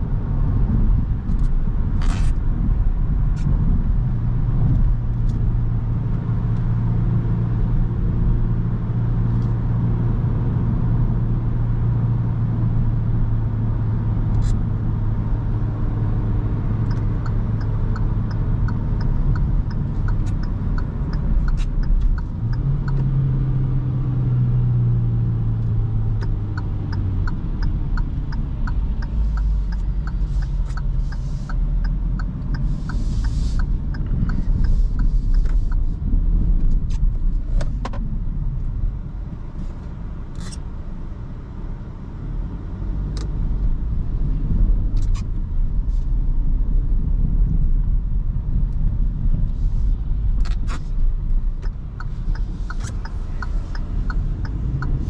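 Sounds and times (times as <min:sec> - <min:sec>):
car engine rumble: 0:00.0 - 0:55.0
turn signal ticking: 0:12.6 - 0:55.0.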